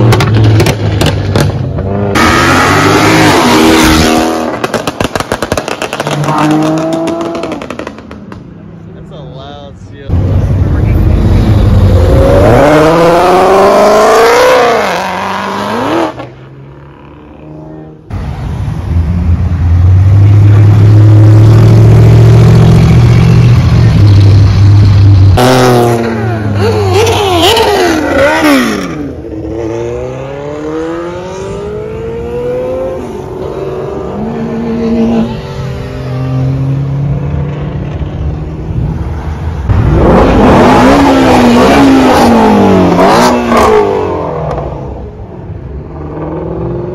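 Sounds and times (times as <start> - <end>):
cars accelerating hard: 0.0 - 8.5, 10.0 - 46.9
deep engine rumble: 17.8 - 29.3.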